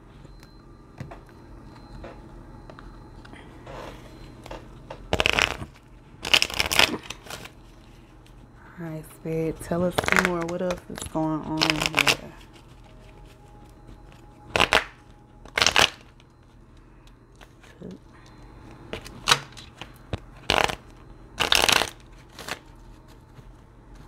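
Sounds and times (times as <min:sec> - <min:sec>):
cards being shuffled: 0:05.1 - 0:07.6, 0:10.0 - 0:10.6, 0:11.6 - 0:13.4, 0:19.0 - 0:24.0.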